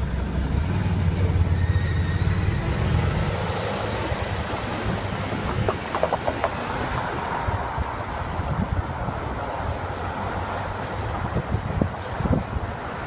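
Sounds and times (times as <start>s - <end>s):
street traffic: 0.0s - 13.0s
wind noise on microphone: 4.0s - 13.0s.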